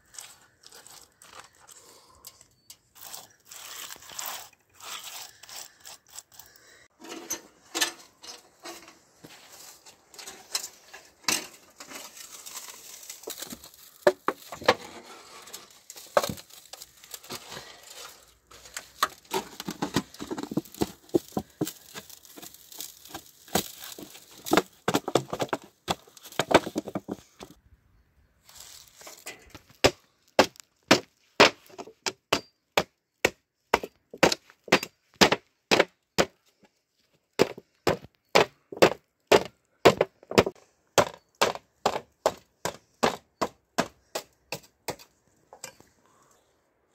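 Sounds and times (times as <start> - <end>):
metal pipe creaking and scraping: 0.0 - 27.6, 28.6 - 29.8, 45.0 - 46.3.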